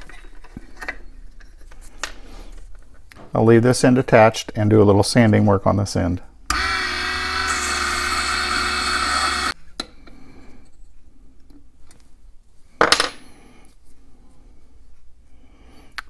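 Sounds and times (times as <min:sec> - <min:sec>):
lathe motor whining: 0:06.5 - 0:09.6.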